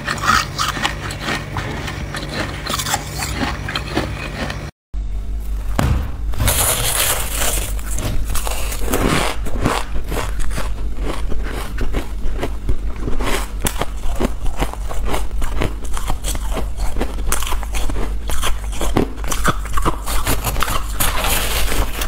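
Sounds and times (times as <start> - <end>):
steady low hum: 0.0 - 22.0
crunching frost: 6.4 - 22.0.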